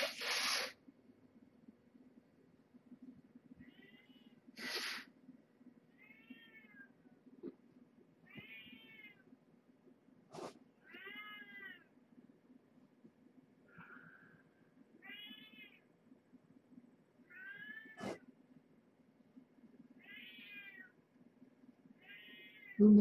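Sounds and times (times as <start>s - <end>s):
hissing noise bursts: 0.0s - 0.8s, 4.6s - 5.0s.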